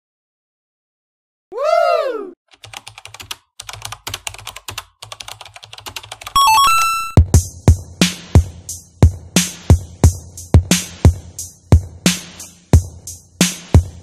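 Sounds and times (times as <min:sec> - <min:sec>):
keyboard typing: 0:02.5 - 0:07.2
drum-machine beat: 0:05.2 - 0:14.0
electronic beeps: 0:06.4 - 0:07.2.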